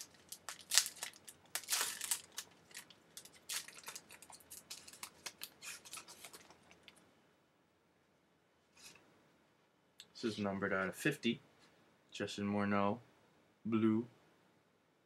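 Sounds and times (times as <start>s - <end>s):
card pack wrapper tearing and crinkling: 0.0s - 7.0s.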